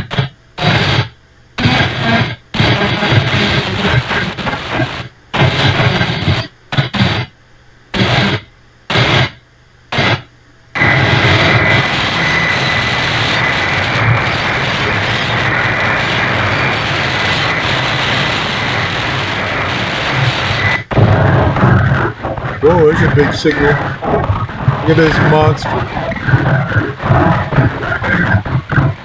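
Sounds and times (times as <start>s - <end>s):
radio static bursts: 0.0s - 29.0s
high-pitched radio whistle: 10.8s - 21.0s.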